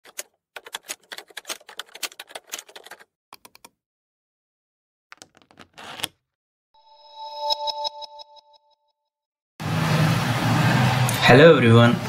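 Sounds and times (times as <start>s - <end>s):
computer keyboard typing: 0.0s - 3.7s.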